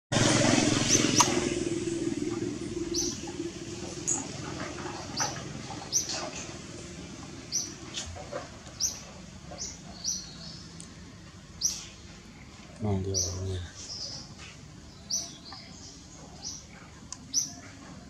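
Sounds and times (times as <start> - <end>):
low hum: 0.1 - 9.1.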